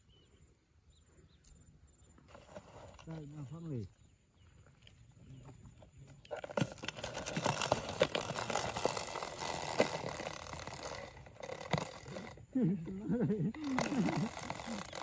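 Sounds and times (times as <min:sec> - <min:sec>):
plastic container rustling and scraping: 0:02.3 - 0:03.3, 0:06.3 - 0:12.5, 0:13.6 - 0:15.0.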